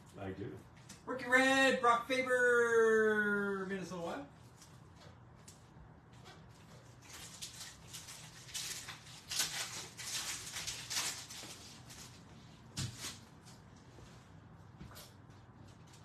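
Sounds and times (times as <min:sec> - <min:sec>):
foil wrapper crinkling: 0:06.7 - 0:13.2.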